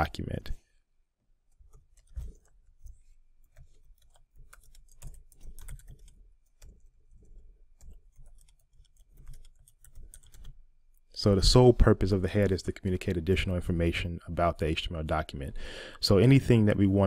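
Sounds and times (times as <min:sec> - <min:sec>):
keyboard typing clicks: 0:01.6 - 0:10.6.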